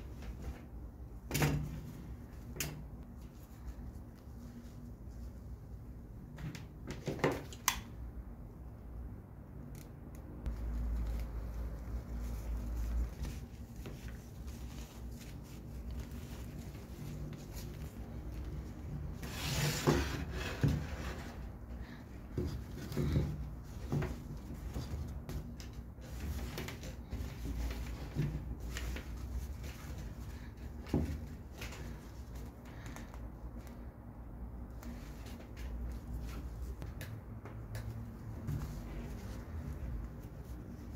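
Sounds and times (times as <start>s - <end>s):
hands rubbing rope: 10.5s - 22.9s.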